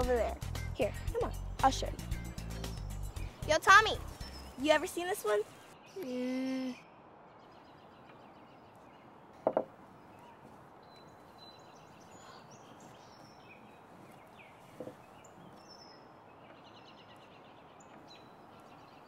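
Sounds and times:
small birds chirping: 0.0s - 19.0s
tapping on wooden table: 9.4s - 9.7s.

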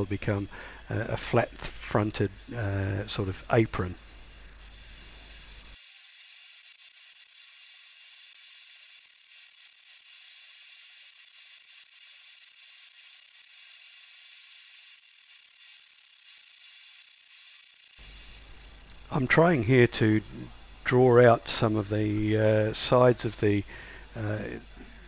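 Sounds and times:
faint hiss: 0.0s - 5.8s, 18.0s - 25.0s.

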